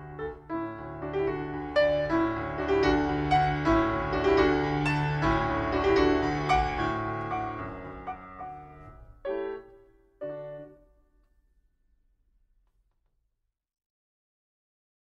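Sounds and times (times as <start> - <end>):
slow piano music: 0.0 - 11.2.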